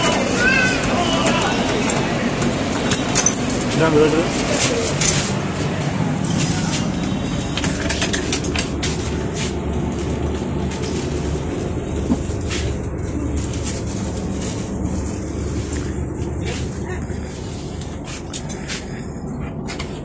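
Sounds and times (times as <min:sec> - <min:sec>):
train running gear rumble: 0:00.0 - 0:20.0.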